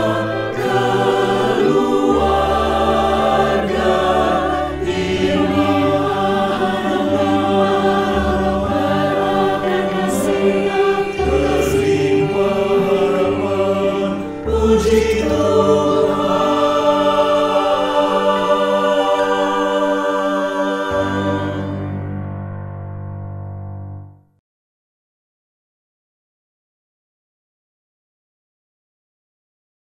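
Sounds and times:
choir singing in harmony: 0.0 - 22.5
piano accompaniment: 0.0 - 24.4.

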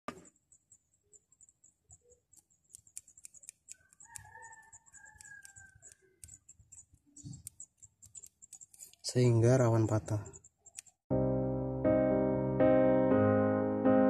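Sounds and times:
rooster crowing faintly: 3.7 - 6.4.

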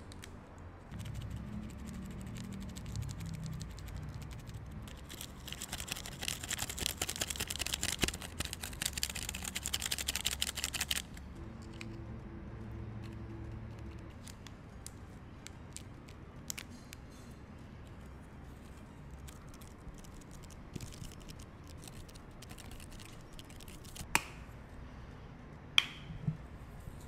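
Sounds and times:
paper sachet tearing: 1.0 - 11.2, 19.2 - 24.1
tapping sachet crackle: 3.1 - 11.0.

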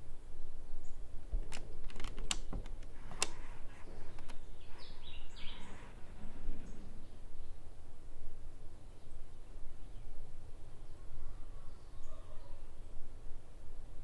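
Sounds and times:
sharp clicks: 1.4 - 3.4.

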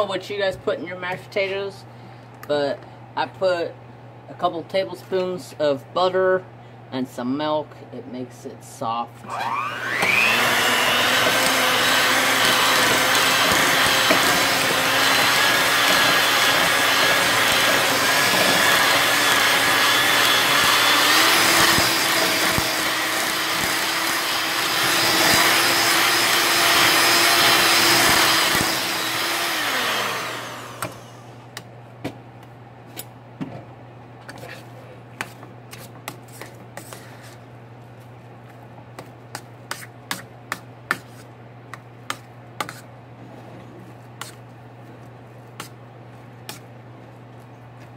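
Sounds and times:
electric hand mixer running: 9.3 - 31.4.

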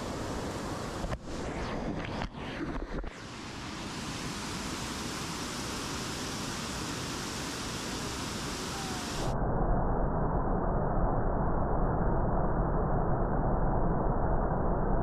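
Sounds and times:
muffled rumble: 0.0 - 4.8
water rushing over a weir: 3.2 - 9.3.

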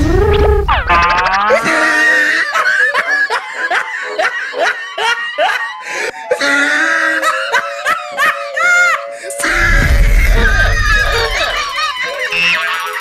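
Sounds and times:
high-pitched laughter: 0.7 - 5.7, 6.4 - 13.0.

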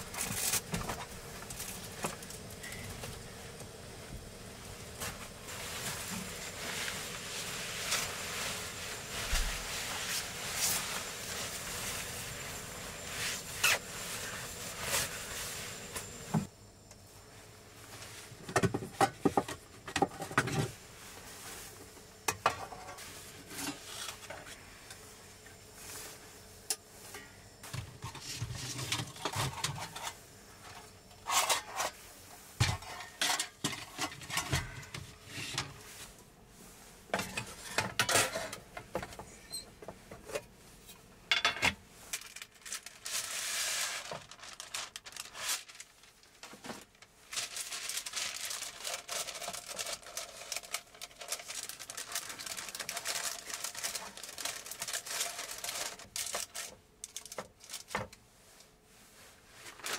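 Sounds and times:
rustling: 4.6 - 16.4, 42.0 - 59.9.

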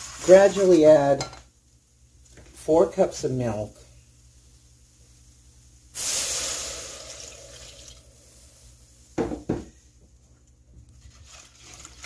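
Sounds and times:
milk pouring into saucepan: 6.0 - 8.5, 10.8 - 12.0.

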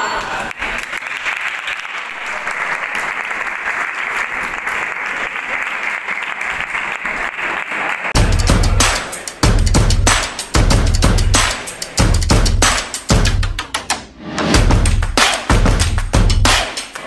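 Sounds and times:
audience applauding: 0.0 - 9.5
loud music with heavy drum beat: 8.2 - 17.0.

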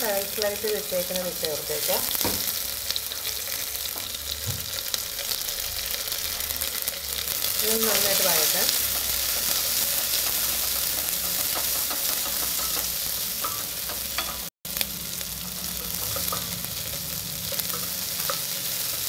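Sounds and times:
onions sizzling in hot oil: 0.0 - 19.0
spatula scraping pot: 7.9 - 14.4.

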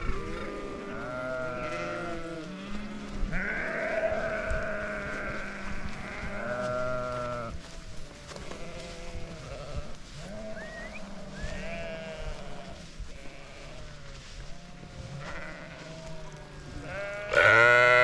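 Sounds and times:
sheep bleating: 0.0 - 18.0.

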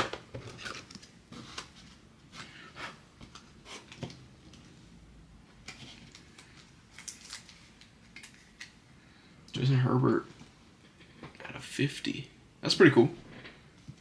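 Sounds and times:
card and plastic rustling: 0.0 - 2.6, 5.6 - 8.8.

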